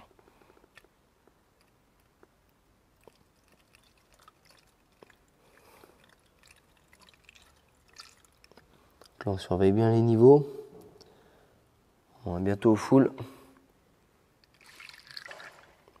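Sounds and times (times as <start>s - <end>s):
coolant trickling into tank: 2.9s - 9.3s, 14.4s - 16.0s.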